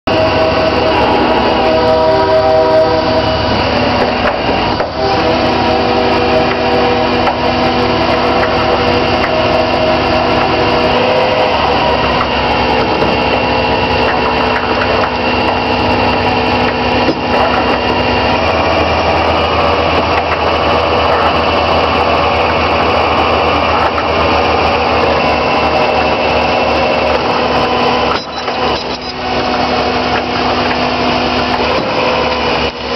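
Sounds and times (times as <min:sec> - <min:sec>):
winch whining: 0:00.1 - 0:32.9.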